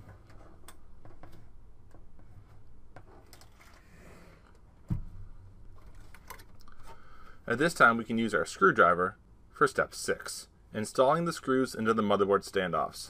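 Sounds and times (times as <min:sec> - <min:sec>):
dull thump: 0:04.8 - 0:05.3.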